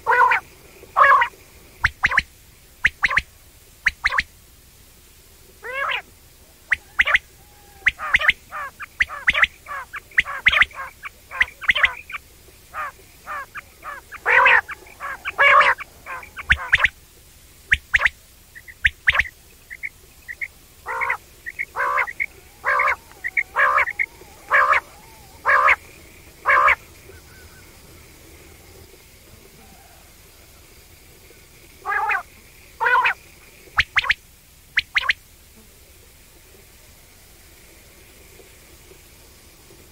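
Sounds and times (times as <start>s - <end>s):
quail calling: 0.0s - 0.4s, 1.0s - 4.3s, 5.6s - 6.1s, 6.7s - 17.0s, 17.7s - 27.8s, 31.8s - 33.2s, 33.8s - 34.2s, 34.8s - 35.2s.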